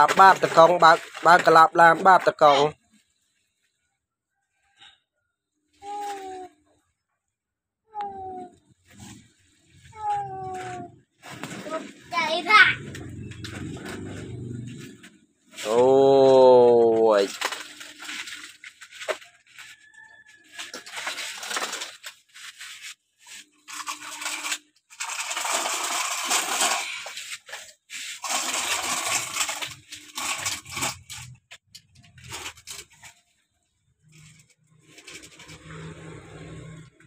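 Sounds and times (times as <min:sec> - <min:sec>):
plastic toy truck clattering: 0:00.0 - 0:02.6, 0:15.6 - 0:19.4, 0:20.6 - 0:22.6, 0:23.6 - 0:33.2, 0:34.2 - 0:36.8
soil scraped and poured: 0:00.0 - 0:03.3, 0:13.1 - 0:31.4, 0:34.0 - 0:37.0.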